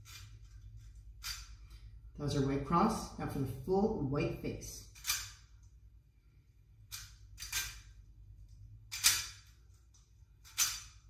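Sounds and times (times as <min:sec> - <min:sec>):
puzzle cube clicking: 0:06.9 - 0:07.9, 0:08.9 - 0:09.4, 0:10.4 - 0:11.0.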